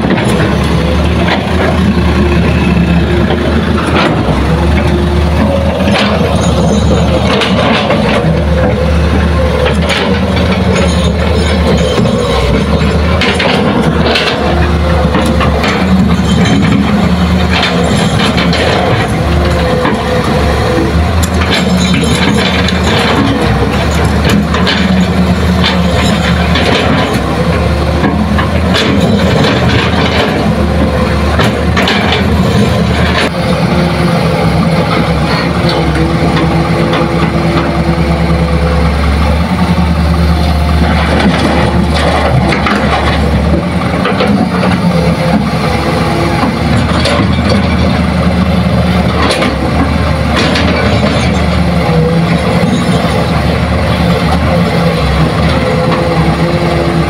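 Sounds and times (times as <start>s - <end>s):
excavator diesel engine: 0.0s - 57.0s.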